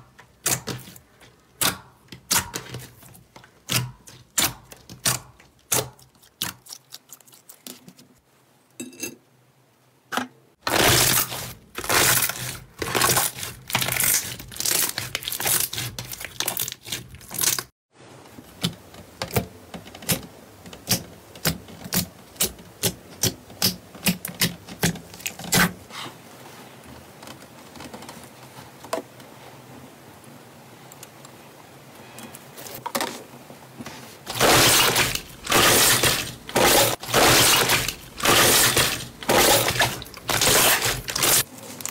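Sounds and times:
slime crackling: 34.3s - 41.9s.

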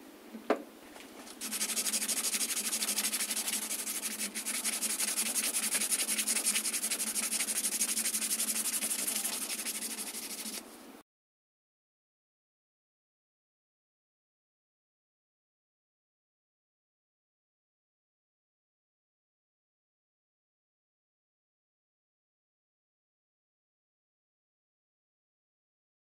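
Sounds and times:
sandpaper rasping on steel blade: 1.4s - 10.6s.

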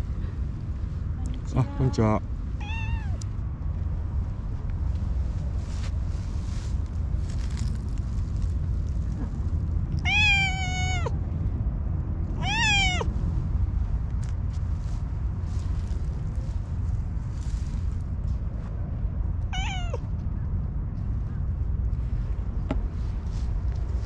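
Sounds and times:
cat meowing: 2.6s - 3.2s, 10.0s - 11.2s, 12.4s - 13.1s, 19.5s - 20.0s.

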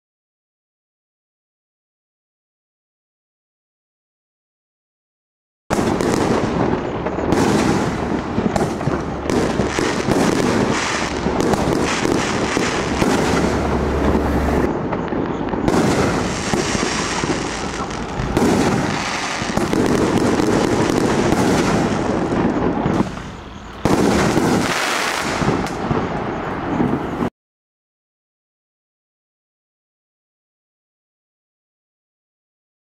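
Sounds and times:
firework crackling: 5.7s - 27.3s
firework shells bursting: 5.7s - 27.3s.

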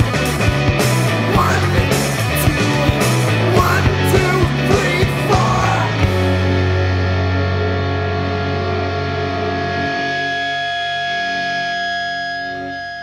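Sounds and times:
bass guitar: 0.0s - 13.0s
drums: 0.0s - 13.0s
electric guitar: 0.0s - 13.0s
person singing: 1.1s - 6.3s.

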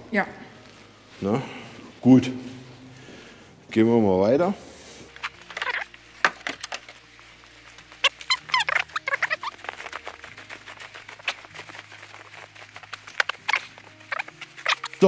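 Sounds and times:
footsteps crunching on snow: 4.7s - 15.0s
high squeaks of snow: 5.0s - 15.0s.

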